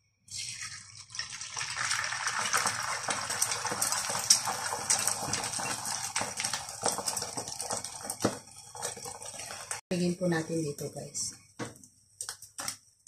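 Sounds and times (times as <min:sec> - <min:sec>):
egg sizzling in hot oil: 0:00.3 - 0:09.8.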